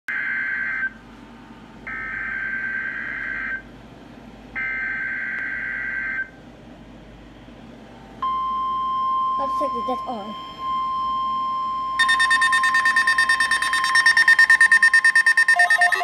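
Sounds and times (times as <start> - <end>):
weather radio data tones: 12.1 - 16.0.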